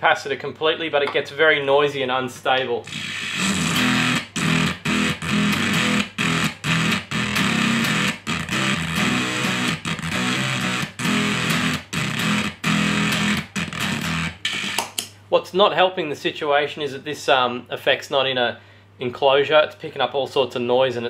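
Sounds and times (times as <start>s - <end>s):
steady electrical hum: 0.0s - 21.0s
distorted electric guitar chords: 2.8s - 14.8s.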